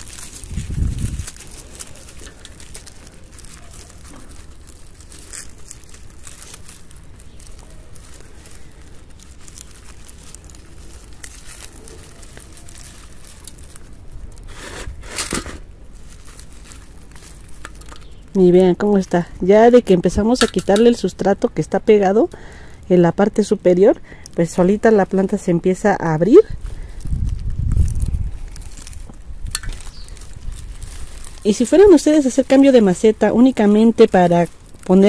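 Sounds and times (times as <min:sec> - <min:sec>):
hands crumbling soil and roots: 0:00.0 - 0:21.7, 0:24.2 - 0:35.0.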